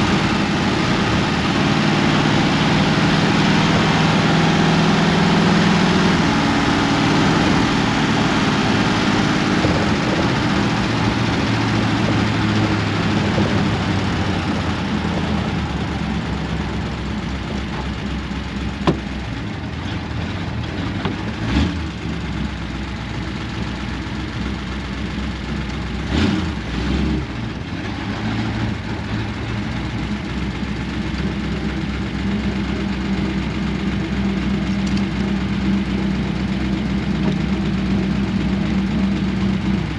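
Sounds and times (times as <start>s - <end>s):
car engine from inside cab: 0.0s - 39.9s
short clunks: 18.7s - 20.0s, 20.6s - 21.4s.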